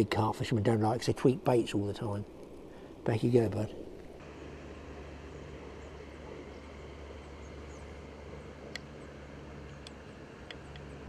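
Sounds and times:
low rumble and hum: 0.0s - 11.0s
light clicks: 9.8s - 11.0s.

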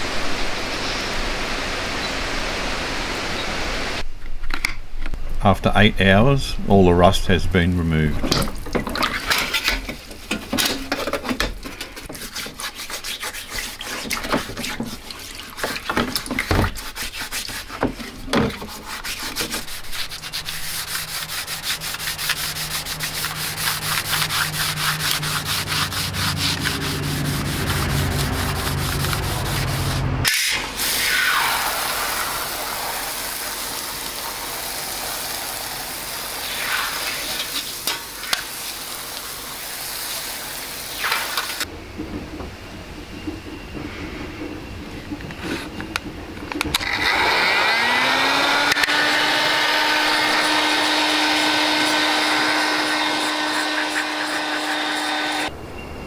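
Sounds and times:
sanding sponge scrubbing steel: 12.0s - 16.0s, 16.6s - 30.1s, 47.5s - 55.5s
water spray nozzle hissing: 18.8s - 41.6s.

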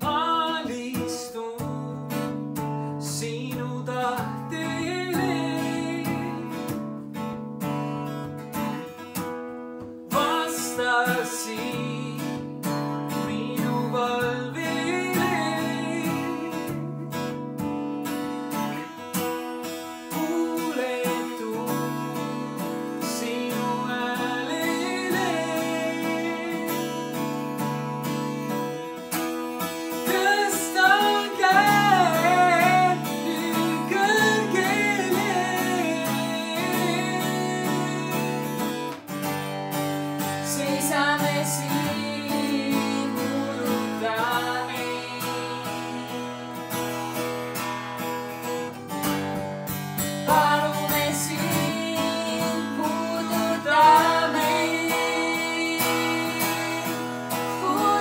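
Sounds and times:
acoustic guitar: 0.0s - 58.0s
woman singing: 23.0s - 27.4s, 29.9s - 38.5s, 40.2s - 46.6s, 50.2s - 58.0s.

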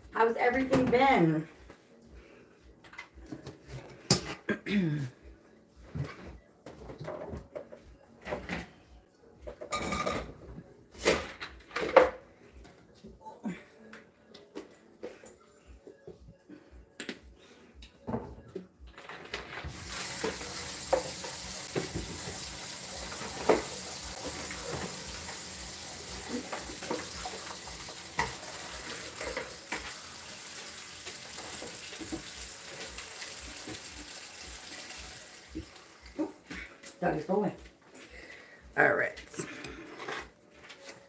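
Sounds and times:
dishes clinking: 9.6s - 10.4s
tap running into a sink: 19.7s - 28.6s, 31.0s - 35.0s.

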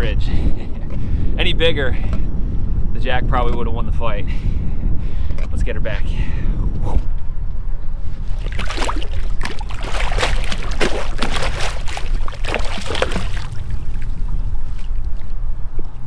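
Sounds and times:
steady low rumble: 0.0s - 16.0s
water splashing and sloshing: 8.1s - 16.0s.

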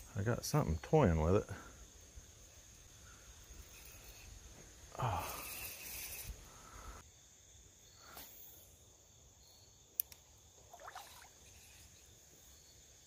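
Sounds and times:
high insect trill: 0.0s - 13.0s
splash in water: 10.7s - 11.4s.

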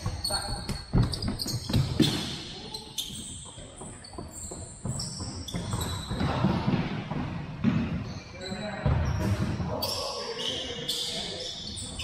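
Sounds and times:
soccer ball kicked and bouncing: 0.0s - 2.5s, 3.1s - 8.2s
sneakers squeaking on gym floor: 0.0s - 12.0s.

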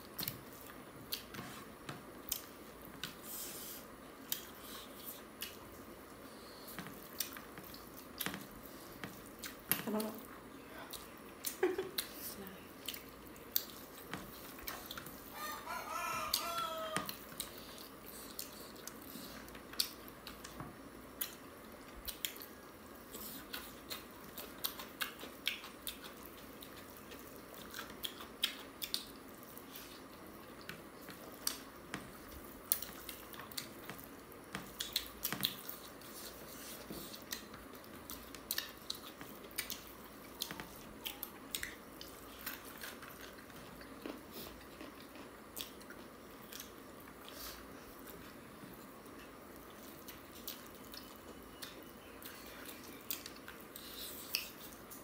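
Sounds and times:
chewing and lip smacks: 0.0s - 1.3s, 2.2s - 3.2s, 4.2s - 12.2s, 12.8s - 15.3s, 16.3s - 20.6s, 21.2s - 55.0s.

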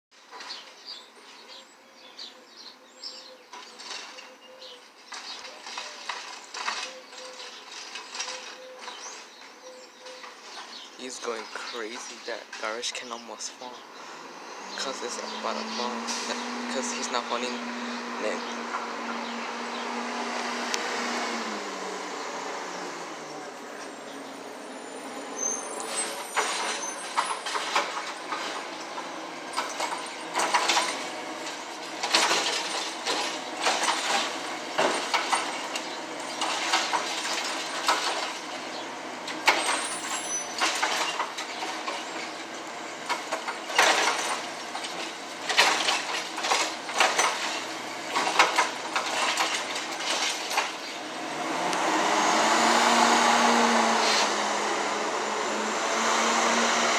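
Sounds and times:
clanks and bangs of cart: 3.6s - 9.4s, 25.6s - 51.0s
diesel engine running: 13.7s - 56.9s.

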